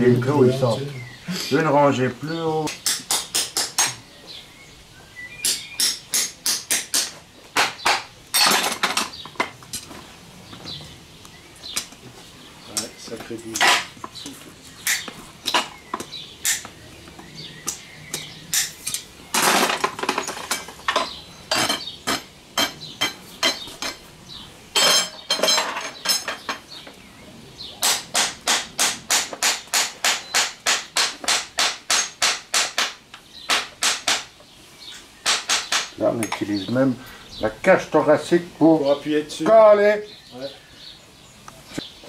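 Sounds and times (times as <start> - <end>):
hammer striking horseshoe nails: 2.7 - 4.0, 5.4 - 9.1, 14.8 - 16.7, 17.6 - 24.0, 27.8 - 34.3, 35.2 - 36.4.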